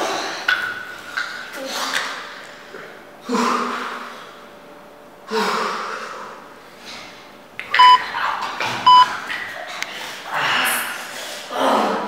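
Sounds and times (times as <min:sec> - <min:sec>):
short electronic beeps: 0:07.8 - 0:08.0, 0:08.9 - 0:09.1.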